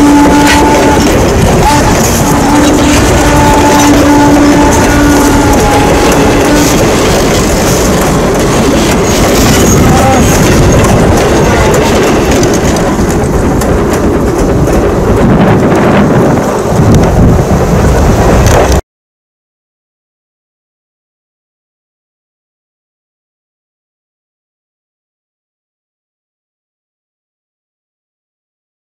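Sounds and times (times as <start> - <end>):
train wheels rumbling on rails: 0.0 - 18.8
wind on microphone: 0.0 - 18.8.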